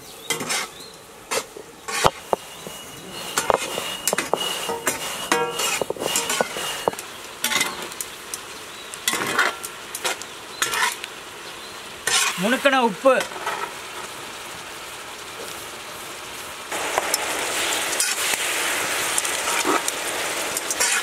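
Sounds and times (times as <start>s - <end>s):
prawns sizzling: 0.0s - 21.0s
metal ladle scraping iron pan: 0.3s - 0.7s, 1.3s - 7.8s, 12.0s - 12.4s, 20.6s - 21.0s
stone roller grinding on stone: 1.3s - 7.8s, 20.6s - 21.0s.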